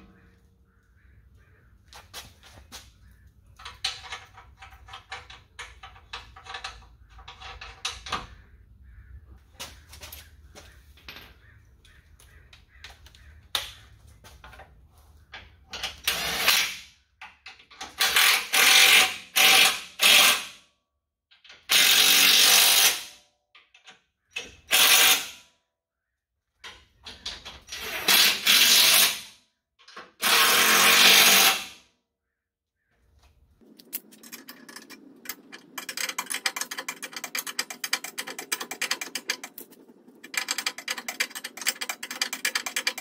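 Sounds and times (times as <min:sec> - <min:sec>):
metallic clicks of bolts handled: 0:33.7 - 0:43.0.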